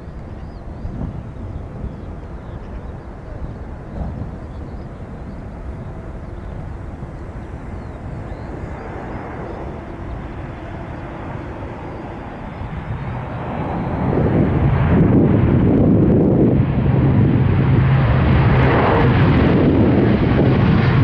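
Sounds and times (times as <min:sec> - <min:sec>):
aircraft engines rumbling: 0:00.0 - 0:21.0.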